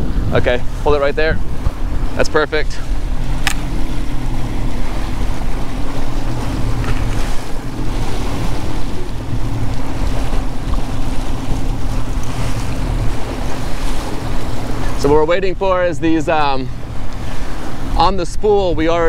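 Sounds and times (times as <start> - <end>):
outboard motors running: 0.0 - 19.0
water rushing past hull: 0.0 - 19.0
wind buffeting microphone: 0.0 - 19.0.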